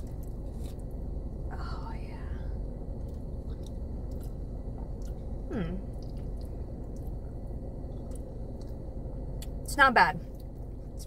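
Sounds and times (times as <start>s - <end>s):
close-up chewing: 3.0s - 9.6s
person humming mm: 5.5s - 5.9s.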